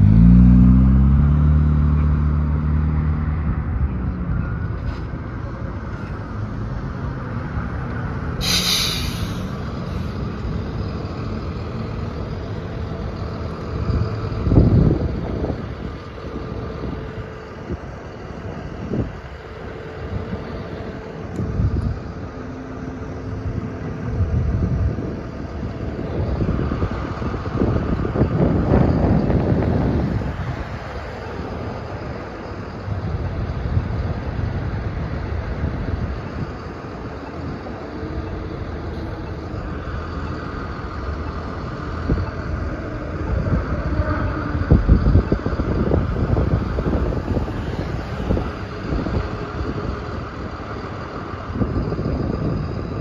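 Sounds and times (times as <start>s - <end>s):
vehicle passing close: 0.0s - 5.4s
bus drawing level: 0.0s - 53.0s
road traffic passing: 0.0s - 53.0s
short high hiss: 8.4s - 10.1s.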